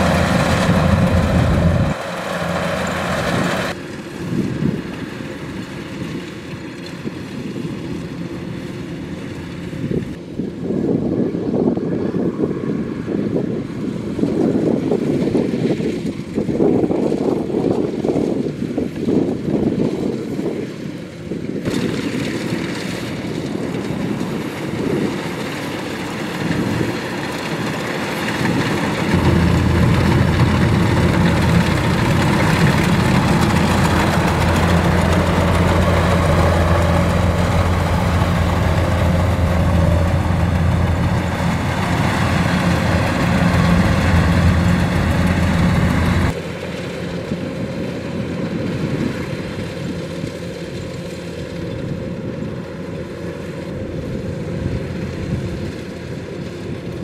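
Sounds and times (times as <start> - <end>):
machinery noise: 0.0 - 10.1, 23.4 - 48.8
combine harvester engine drone: 0.0 - 57.0.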